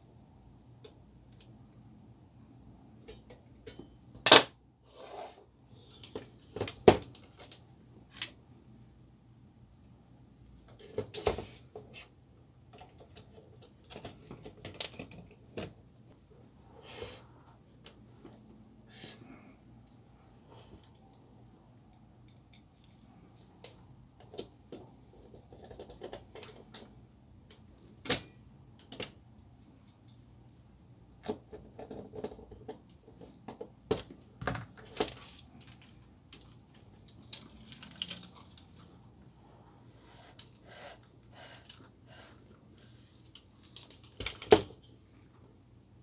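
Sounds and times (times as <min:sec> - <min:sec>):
plastic parts clicking and knocking: 0:12.7 - 0:15.8, 0:23.6 - 0:29.2, 0:31.2 - 0:39.0, 0:43.3 - 0:44.9.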